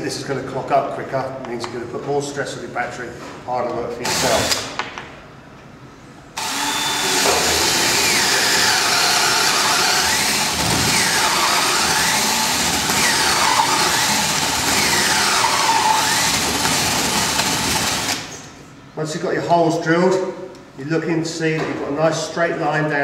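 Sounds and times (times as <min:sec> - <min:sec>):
cordless drill boring into wood: 0:04.0 - 0:04.6, 0:06.4 - 0:18.3.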